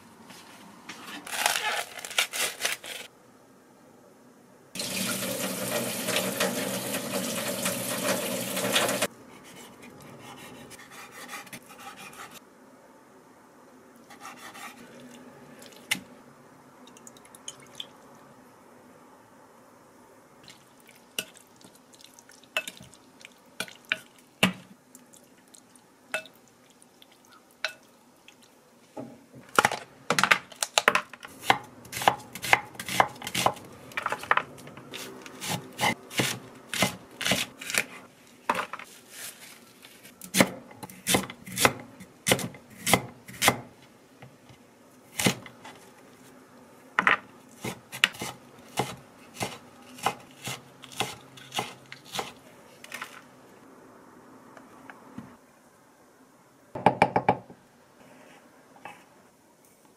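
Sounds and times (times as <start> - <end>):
kitchen tap running: 4.8 - 9.1.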